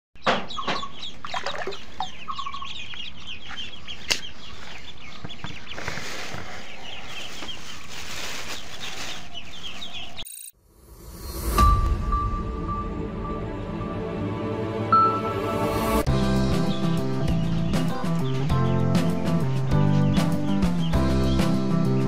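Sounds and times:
ducklings peeping: 0:00.2 - 0:10.2, 0:16.5 - 0:22.0.

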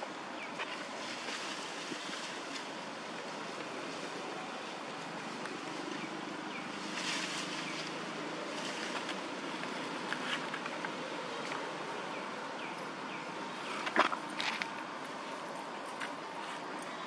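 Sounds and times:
outdoor background hiss: 0:00.0 - 0:17.0
soft rustles: 0:00.6 - 0:11.7.

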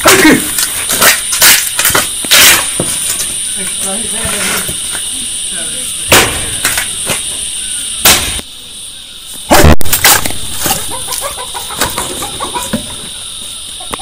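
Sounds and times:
chickens clucking: 0:00.0 - 0:14.0
axe chopping log: 0:06.1 - 0:07.2, 0:08.0 - 0:08.4.

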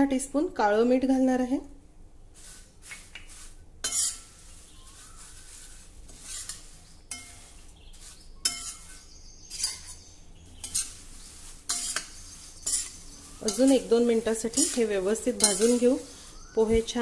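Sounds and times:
spatula scraping metal pan: 0:03.8 - 0:17.0.

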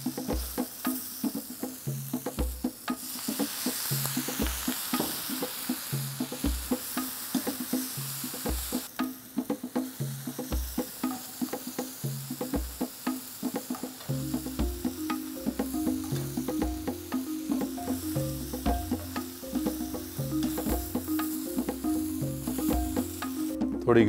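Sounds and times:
mushrooms sizzling in a pan: 0:00.0 - 0:23.7
background music with bass beat: 0:14.0 - 0:24.0.

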